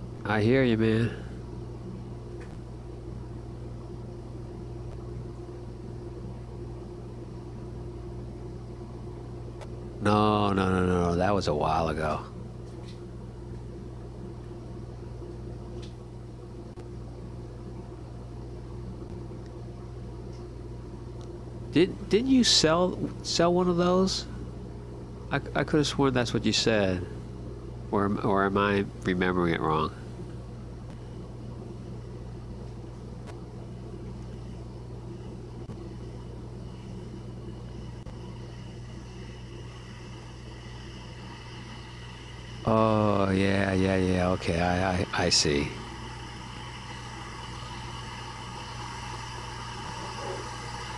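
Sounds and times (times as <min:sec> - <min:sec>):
kettle humming and hissing: 0:00.0 - 0:50.9.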